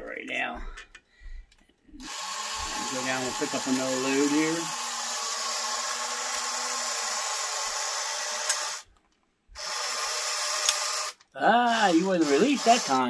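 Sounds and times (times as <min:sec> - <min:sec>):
toy motor and gears whirring: 0:02.0 - 0:08.9, 0:09.6 - 0:13.0.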